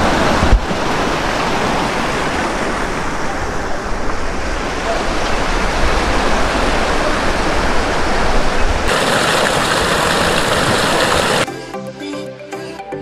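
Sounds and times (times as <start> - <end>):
water pouring onto rocks: 8.9 - 11.5.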